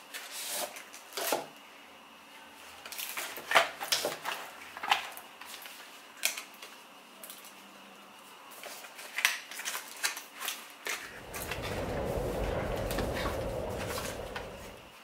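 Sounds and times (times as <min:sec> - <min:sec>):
low rushing noise: 0:11.2 - 0:15.0.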